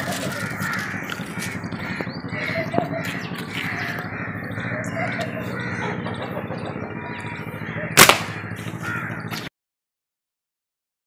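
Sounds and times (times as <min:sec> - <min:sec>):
steady low hum: 0:00.0 - 0:09.4
birds chirping: 0:00.0 - 0:09.5
crows cawing: 0:00.0 - 0:09.5.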